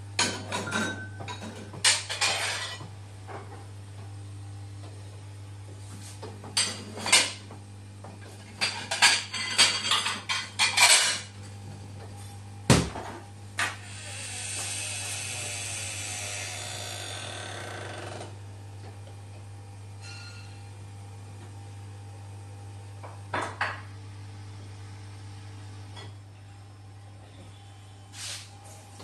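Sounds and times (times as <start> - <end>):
dishes clinking and knocking: 0.2 - 2.9, 6.6 - 7.5, 8.6 - 11.3, 23.0 - 23.9
steady hiss: 13.6 - 16.9
low steady hum: 18.1 - 29.0.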